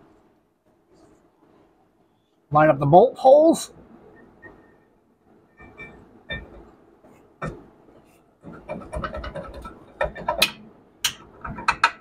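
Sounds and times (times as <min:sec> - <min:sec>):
metal clicks and scrapes: 0:08.4 - 0:12.0.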